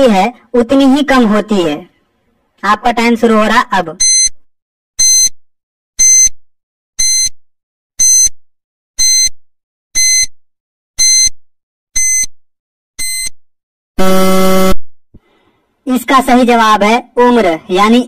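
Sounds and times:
low buzzer: 0:04.0 - 0:04.3, 0:05.0 - 0:05.4, 0:06.0 - 0:06.4, 0:07.0 - 0:07.4, 0:08.0 - 0:08.4, 0:09.0 - 0:09.4, 0:10.0 - 0:10.4, 0:11.0 - 0:11.4, 0:12.0 - 0:12.4, 0:13.0 - 0:13.4, 0:14.0 - 0:14.8
short electronic beeps: 0:04.0 - 0:04.4, 0:05.0 - 0:05.4, 0:06.0 - 0:06.4, 0:07.0 - 0:07.4, 0:08.0 - 0:08.4, 0:09.0 - 0:09.4, 0:10.0 - 0:10.4, 0:11.0 - 0:11.4, 0:12.0 - 0:12.4, 0:13.0 - 0:13.4.

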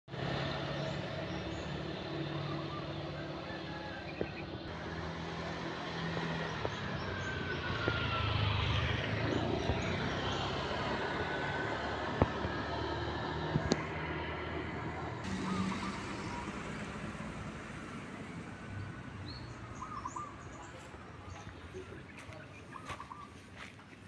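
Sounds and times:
vehicle passing close by: 0:00.1 - 0:22.0
vehicle engines running: 0:00.1 - 0:24.0.

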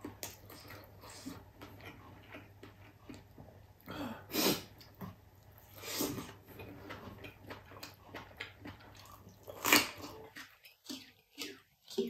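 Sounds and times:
soft clicking chewing: 0:00.0 - 0:03.9, 0:04.8 - 0:12.0
loud crunch of chili bitten: 0:05.8 - 0:12.0.

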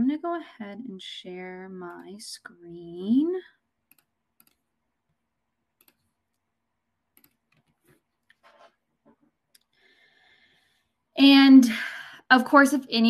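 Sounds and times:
faint computer mouse clicks: 0:03.9 - 0:04.6.

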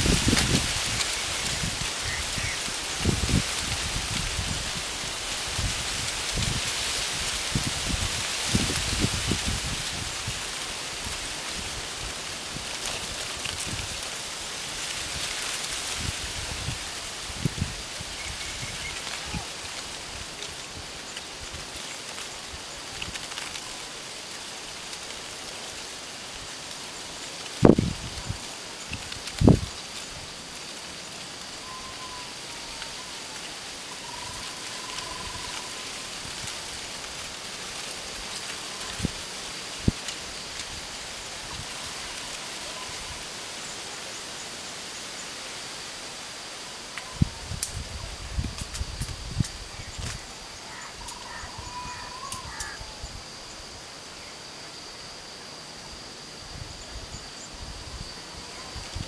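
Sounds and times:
wind gusting on microphone: 0:00.0 - 0:21.7, 0:27.6 - 0:30.4, 0:47.0 - 0:53.4
high insect drone: 0:00.0 - 0:59.0
rushing outdoor noise: 0:00.0 - 0:59.0
faint wavering whistle-like call: 0:31.6 - 0:32.8.

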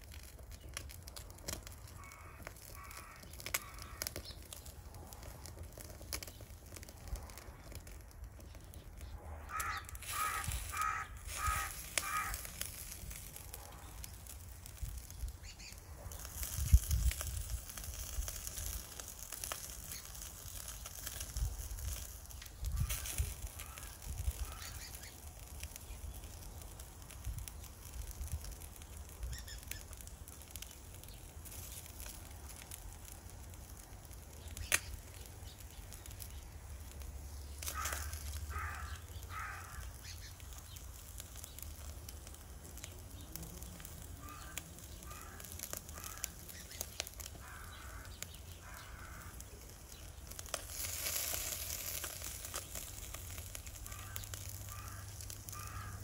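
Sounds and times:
fish sizzling on charcoal grill: 0:00.0 - 0:56.0
crows cawing: 0:01.8 - 0:04.5, 0:09.3 - 0:13.2, 0:22.8 - 0:25.2, 0:37.6 - 0:40.7, 0:43.8 - 0:49.8, 0:53.4 - 0:56.0.

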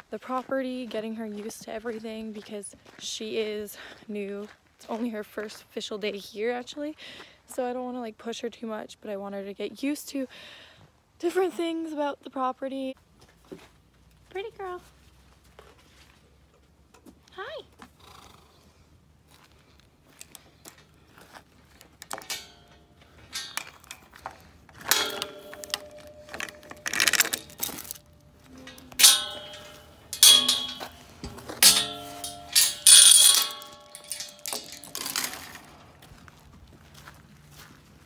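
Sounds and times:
metal gate clanking and rattling: 0:22.0 - 0:36.4
sharp ringing knocks on metal: 0:24.9 - 0:27.6, 0:28.7 - 0:34.8.

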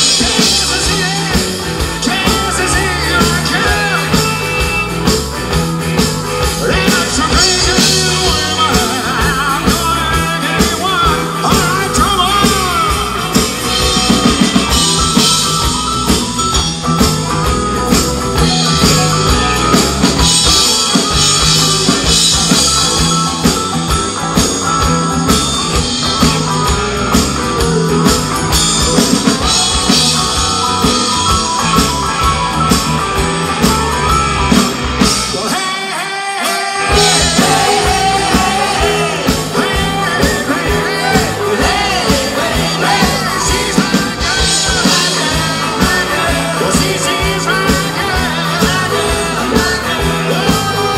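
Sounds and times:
man singing lead: 0:00.0 - 0:16.7, 0:35.0 - 0:50.9
live rock band playing: 0:00.0 - 0:50.9.

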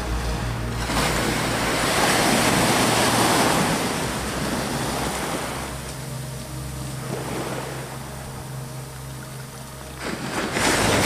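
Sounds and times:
wave breaking on shore: 0:00.0 - 0:05.8.

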